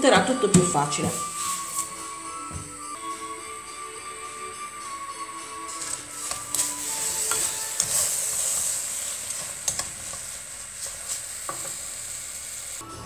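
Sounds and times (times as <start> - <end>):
spoon scraping sugar in pot: 1.1 - 2.0, 5.7 - 12.3.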